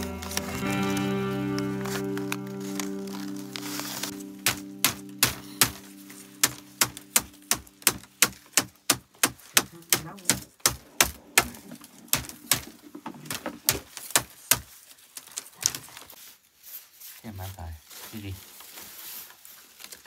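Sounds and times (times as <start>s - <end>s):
rapid sharp strikes: 4.4s - 12.7s.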